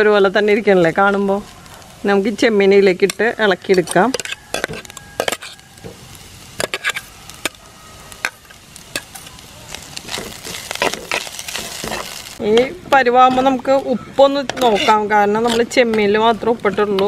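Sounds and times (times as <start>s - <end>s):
faint sizzle: 0.0s - 17.0s
stirring in a clay pot: 3.0s - 7.6s, 8.2s - 17.0s
metal spatula scraping bowl: 3.7s - 6.0s, 6.6s - 7.6s, 10.0s - 13.7s, 14.3s - 17.0s.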